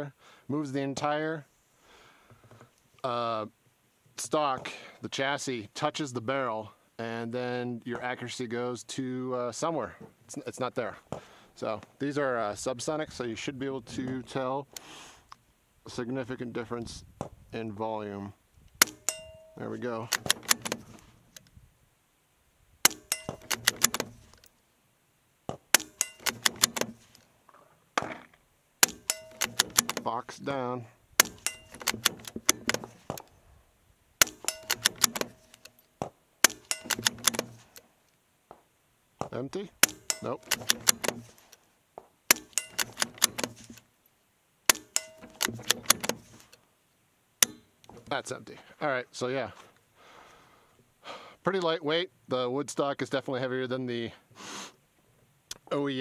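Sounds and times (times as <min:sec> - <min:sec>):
metallic clicks and pings: 0:18.8 - 0:21.0, 0:22.9 - 0:24.5, 0:25.8 - 0:27.2, 0:28.8 - 0:30.1, 0:31.2 - 0:33.3, 0:34.2 - 0:37.8, 0:39.8 - 0:41.3, 0:42.3 - 0:43.8, 0:44.7 - 0:46.5, 0:47.4 - 0:47.9
quiet suppressed rifle shots: 0:34.2 - 0:35.8.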